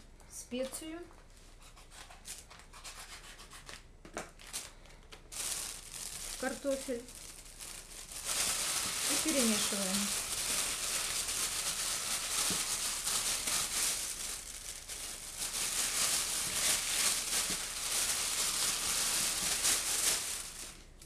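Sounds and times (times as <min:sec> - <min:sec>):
plastic bag crinkling: 0:04.3 - 0:21.0.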